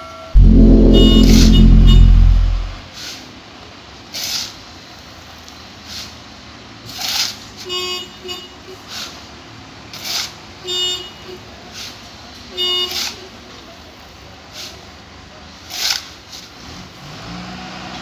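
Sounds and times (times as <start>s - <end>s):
reverse horn tooting: 0.4s - 2.8s.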